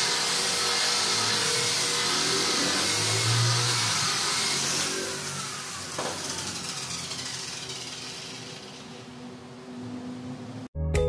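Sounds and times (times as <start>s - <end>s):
electric polisher whining: 0.0s - 9.8s.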